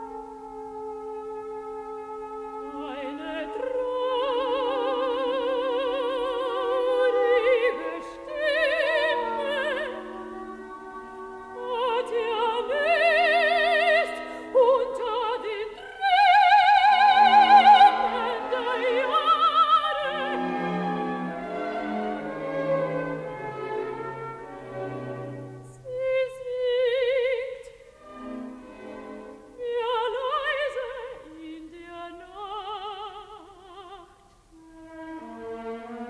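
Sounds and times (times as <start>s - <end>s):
orchestral accompaniment: 0.0s - 31.5s
woman singing with vibrato: 2.6s - 20.7s, 25.6s - 28.0s, 29.5s - 36.0s.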